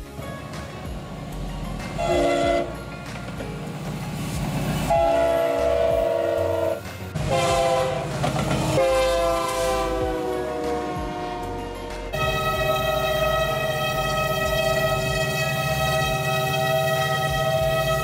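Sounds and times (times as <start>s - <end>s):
locomotive engine and train rumble: 0.0s - 18.0s
locomotive air horn blasts: 2.0s - 2.8s, 4.9s - 18.0s.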